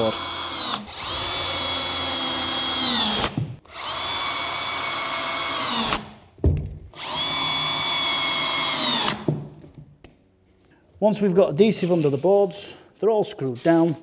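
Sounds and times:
cordless drill driving screws: 0:00.0 - 0:06.2, 0:07.0 - 0:09.3.

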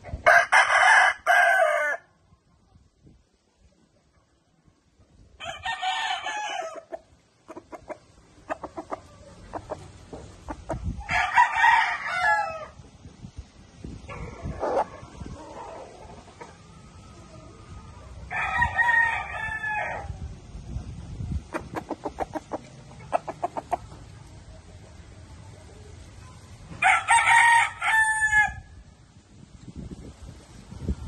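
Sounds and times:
rooster crowing: 0:11.1 - 0:12.7, 0:26.8 - 0:28.6.

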